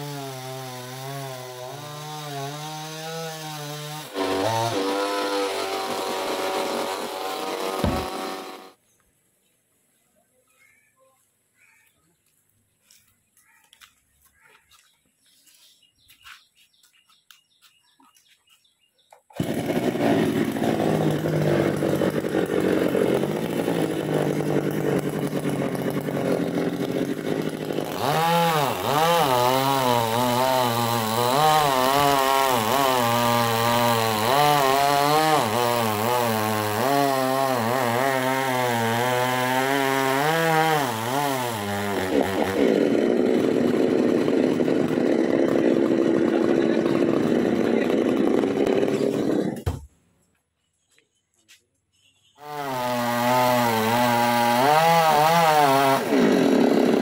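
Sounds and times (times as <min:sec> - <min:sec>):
chainsaw cutting wood: 0:00.0 - 0:08.8, 0:19.3 - 0:49.9, 0:52.4 - 0:57.0.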